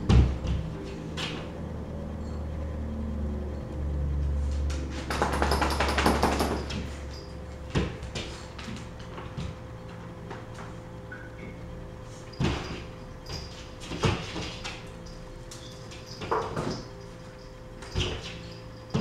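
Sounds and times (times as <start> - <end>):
claws scrabbling on wall and floor: 12.3 - 19.0.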